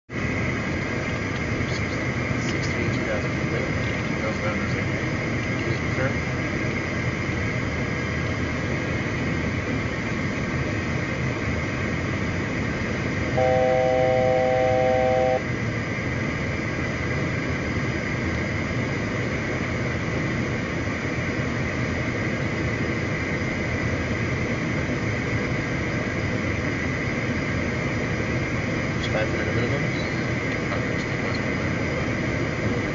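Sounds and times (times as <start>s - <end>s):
cockpit airflow and engine hum: 0.1s - 32.9s
three-note alert tone: 13.4s - 15.4s.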